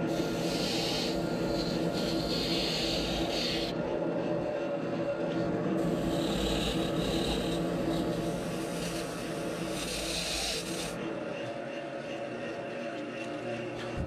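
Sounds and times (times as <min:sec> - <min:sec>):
sandpaper hissing on foam: 0:00.0 - 0:03.7, 0:05.8 - 0:11.0
lathe humming: 0:00.0 - 0:14.0.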